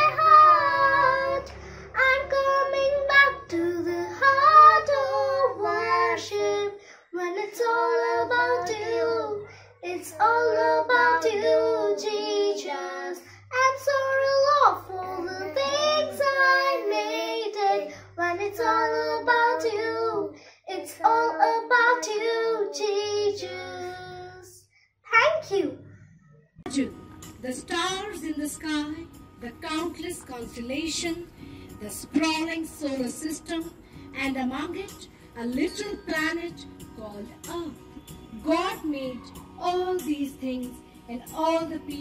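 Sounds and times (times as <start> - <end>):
child singing: 0.0 - 24.6.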